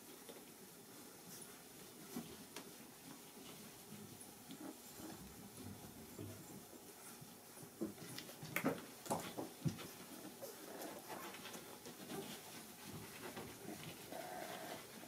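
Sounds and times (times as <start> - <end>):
puppies suckling and breathing: 0.0 - 15.0.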